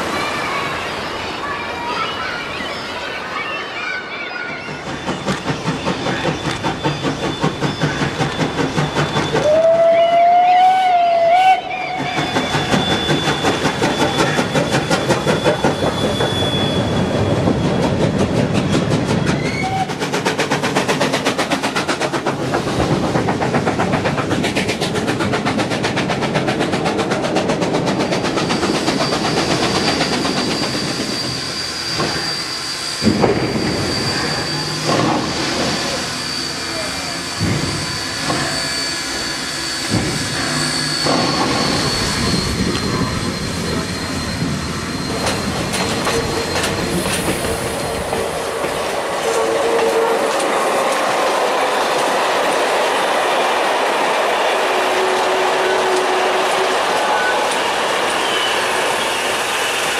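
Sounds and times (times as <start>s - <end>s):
steam locomotive chuffing: 4.1s - 59.9s
steam whistle: 9.2s - 13.6s, 54.6s - 59.9s.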